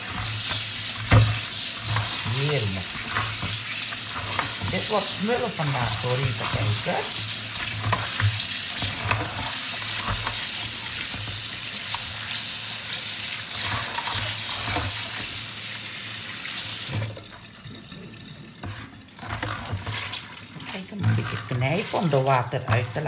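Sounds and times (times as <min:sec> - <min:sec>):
water dripping from colander: 0:00.0 - 0:09.2
tap running into sink: 0:00.0 - 0:15.5, 0:16.4 - 0:21.9.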